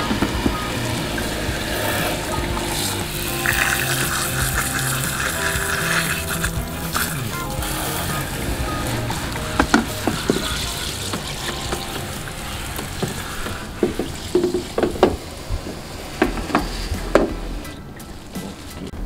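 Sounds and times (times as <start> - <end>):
hose water spraying into plastic tank: 0.0 - 17.4.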